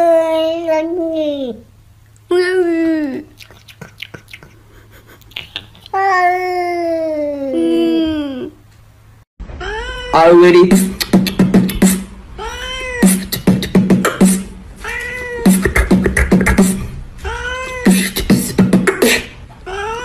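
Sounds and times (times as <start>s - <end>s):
beatbox beats: 3.4s - 5.9s, 10.6s - 12.2s, 13.0s - 14.6s, 15.4s - 17.0s, 17.8s - 19.4s
cat meowing: 12.4s - 13.1s, 14.8s - 15.5s.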